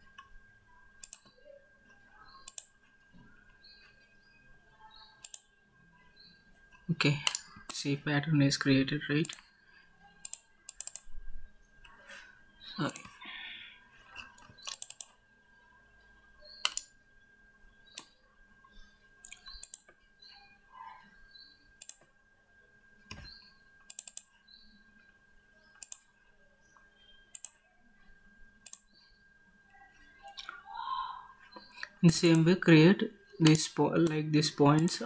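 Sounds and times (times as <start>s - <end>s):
faint electrical hum: 0.0s - 35.0s
computer mouse clicking: 1.0s - 1.4s, 2.4s - 2.7s, 5.2s - 5.5s, 10.2s - 11.1s, 14.2s - 15.2s, 16.6s - 16.9s, 19.2s - 20.0s, 21.8s - 22.1s, 23.9s - 24.3s, 25.8s - 26.1s, 27.3s - 27.6s, 28.6s - 29.0s, 31.5s - 32.5s, 33.4s - 34.2s, 34.8s - 35.0s.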